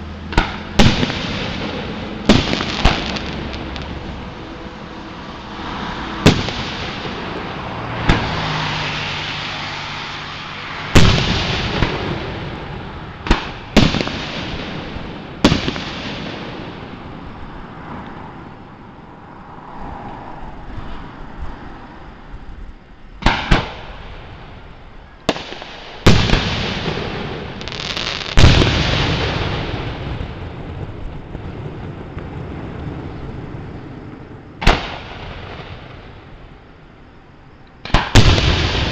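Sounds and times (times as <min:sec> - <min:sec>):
fireworks booming with echoing rumble: 0:00.0 - 0:04.4, 0:06.2 - 0:09.1, 0:10.9 - 0:17.7, 0:23.2 - 0:36.9, 0:37.8 - 0:38.9.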